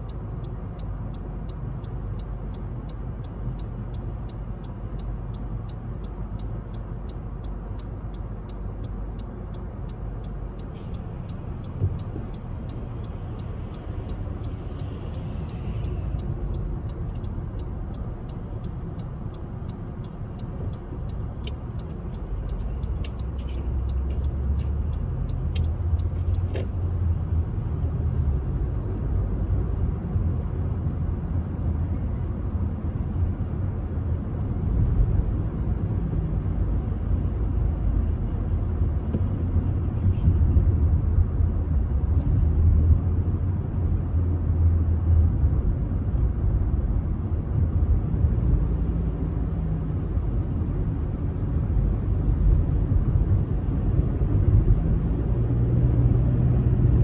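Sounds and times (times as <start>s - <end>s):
faint regular ticking: 0.0s - 26.6s
car road and engine rumble: 0.0s - 57.0s.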